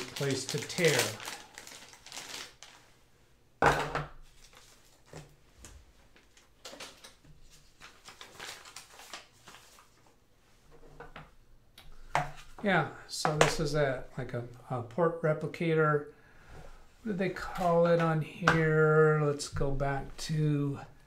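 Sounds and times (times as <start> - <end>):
plastic bag tearing: 0.0 - 2.8
plastic and paper rustling: 0.0 - 2.9, 4.2 - 5.3, 6.0 - 10.2.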